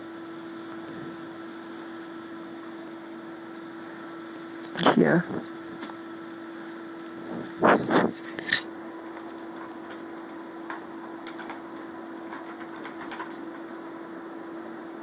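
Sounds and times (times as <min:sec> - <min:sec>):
steady low hum: 0:00.0 - 0:15.0
keyboard typing: 0:10.7 - 0:13.6.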